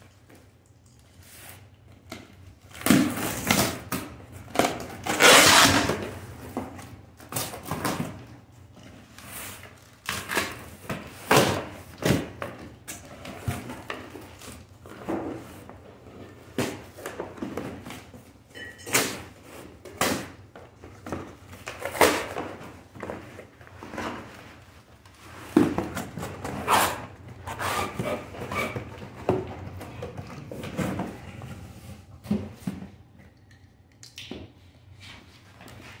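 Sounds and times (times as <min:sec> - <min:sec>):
cardboard and tape tearing: 0:02.8 - 0:06.1.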